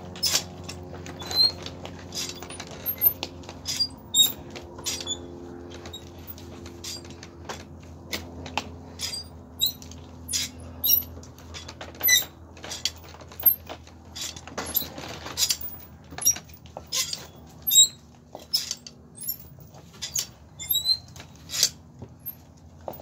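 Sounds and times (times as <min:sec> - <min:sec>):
hoof scraping and cutting: 0:00.0 - 0:23.0
low steady hum: 0:00.0 - 0:23.0.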